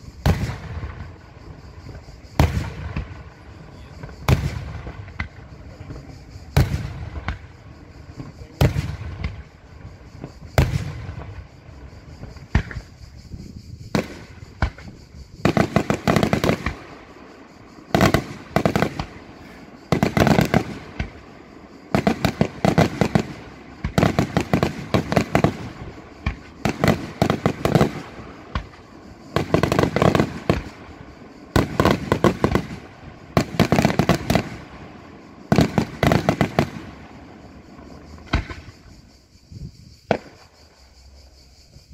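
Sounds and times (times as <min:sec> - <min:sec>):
firework bangs and crackles: 0:00.0 - 0:39.2, 0:40.0 - 0:41.2
firework shells bursting: 0:13.9 - 0:30.9.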